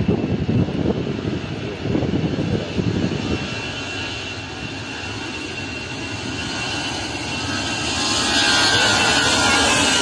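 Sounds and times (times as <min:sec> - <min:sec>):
jet engines rushing: 0:00.0 - 0:10.0.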